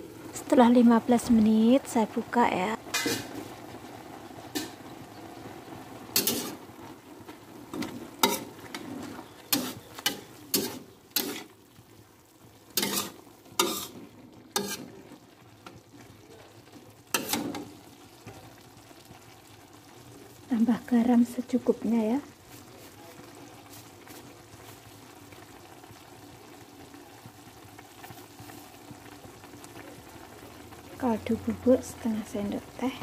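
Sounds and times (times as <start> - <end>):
faint steady sizzle: 0.0 - 33.0
metal spatula scraping wok: 2.9 - 3.5, 4.5 - 4.9, 6.1 - 6.6, 7.7 - 11.6, 12.7 - 15.2, 17.1 - 17.8.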